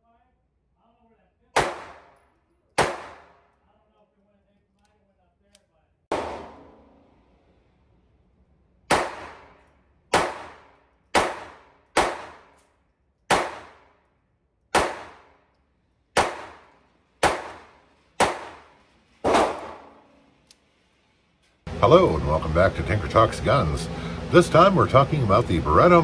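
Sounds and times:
pistol shots echoing indoors: 1.5s - 3.6s, 6.1s - 7.4s, 8.8s - 20.4s.

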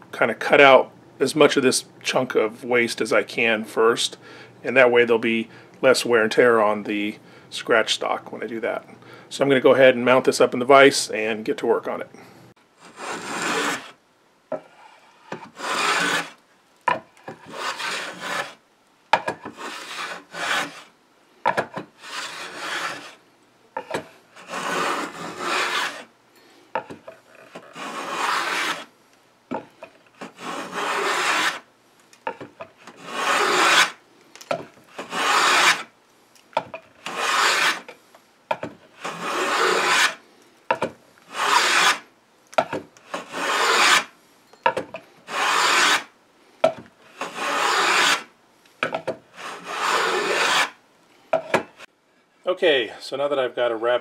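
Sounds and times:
hand plane shaving wood: 12.8s - 13.9s, 15.2s - 16.4s, 17.3s - 18.6s, 19.4s - 20.9s, 22.0s - 23.2s, 23.8s - 26.1s, 27.5s - 28.9s, 30.2s - 31.6s, 32.3s - 34.0s, 34.9s - 35.9s, 37.0s - 37.9s, 38.9s - 40.2s, 41.3s - 42.0s, 43.0s - 44.1s, 45.2s - 46.1s, 47.1s - 48.3s, 49.3s - 50.8s.

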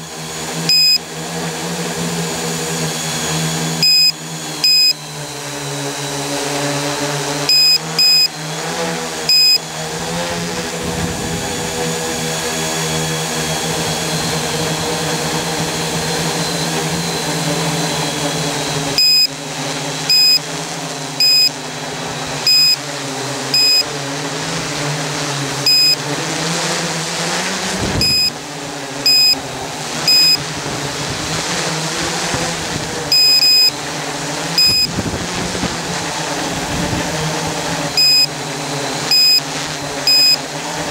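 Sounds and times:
drone motors whirring: 0.5s - 12.0s, 13.7s - 22.9s, 23.5s - 26.2s, 27.0s - 40.9s
short electronic beeps: 0.7s - 1.0s, 3.8s - 5.0s, 7.5s - 8.4s, 9.3s - 9.6s, 19.0s - 19.4s, 20.1s - 20.4s, 21.2s - 21.6s, 22.5s - 22.8s, 23.6s - 23.9s, 25.7s - 26.0s, 28.0s - 28.4s, 29.1s - 29.4s, 30.1s - 30.4s, 33.1s - 33.8s, 34.6s - 34.9s, 38.0s - 38.3s, 39.1s - 39.4s, 40.1s - 40.4s.

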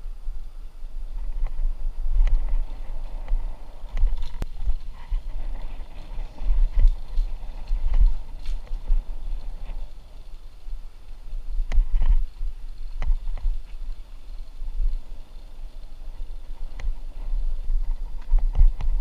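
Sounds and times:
trail vibration rumble: 0.0s - 19.0s
bike knocking and rattling: 0.9s - 19.0s.

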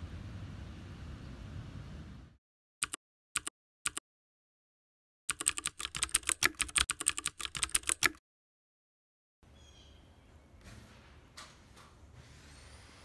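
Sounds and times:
keyboard typing clicks: 2.8s - 4.0s, 5.3s - 8.2s.

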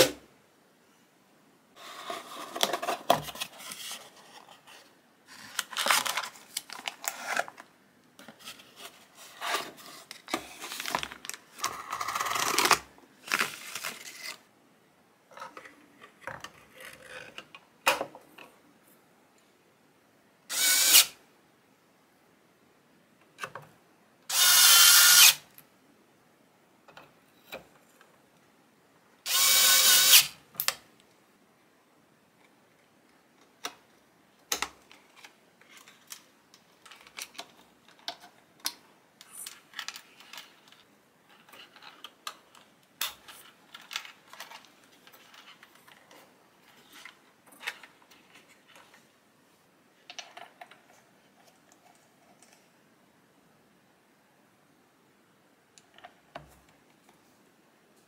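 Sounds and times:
electric screwdriver running: 20.5s - 21.1s, 24.3s - 25.4s, 29.3s - 30.3s.

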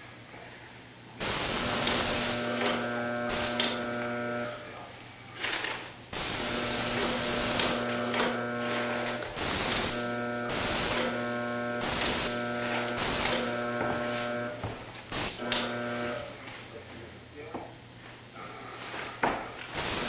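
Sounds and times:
steady machine hum: 0.0s - 18.8s
paint spray gun hissing: 1.2s - 4.6s, 6.2s - 16.3s, 19.8s - 20.0s.

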